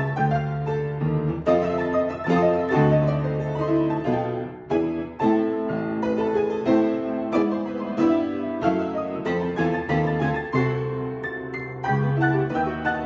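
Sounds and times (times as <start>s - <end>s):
piano duet: 0.0s - 13.0s.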